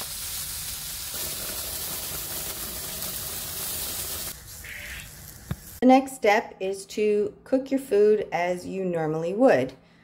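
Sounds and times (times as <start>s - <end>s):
chicken sizzling in skillet: 0.0s - 5.8s.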